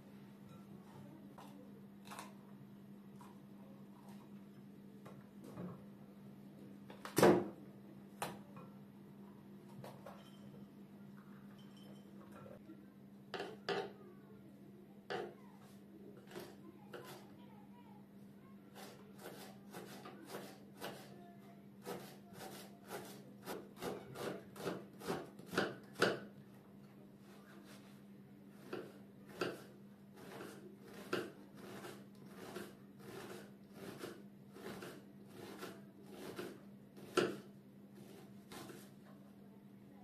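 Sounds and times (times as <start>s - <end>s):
knife cutting onion: 18.7s - 21.2s, 21.8s - 26.3s, 28.5s - 39.0s
knife chopping on wooden board: 18.8s - 21.1s, 21.8s - 26.3s, 28.6s - 38.8s.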